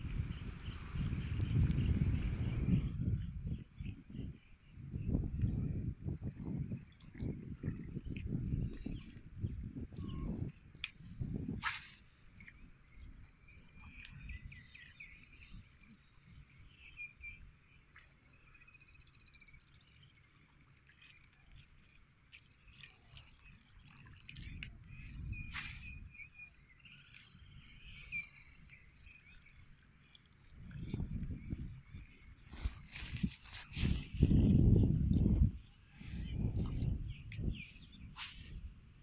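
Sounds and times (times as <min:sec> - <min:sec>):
wind rumble on microphone: 0:00.0 - 0:17.6, 0:23.2 - 0:39.0
birds chirping: 0:12.2 - 0:21.7, 0:22.3 - 0:32.9.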